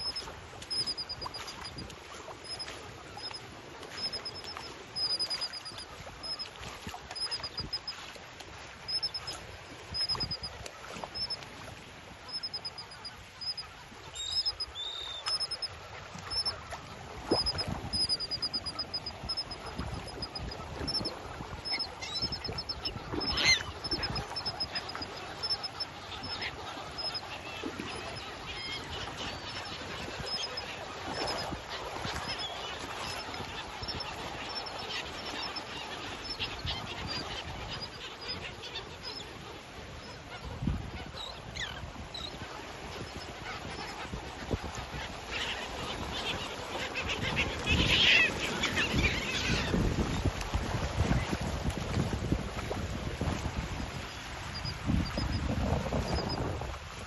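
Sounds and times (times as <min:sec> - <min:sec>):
water: 0:00.0 - 0:57.0
wind: 0:00.0 - 0:57.0
gulls and terns calling: 0:17.4 - 0:50.1.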